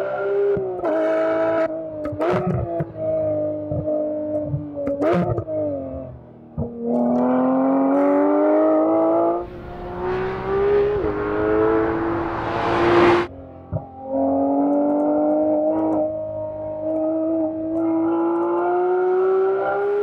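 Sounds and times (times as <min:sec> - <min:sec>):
car engine accelerating hard: 0:06.9 - 0:16.2.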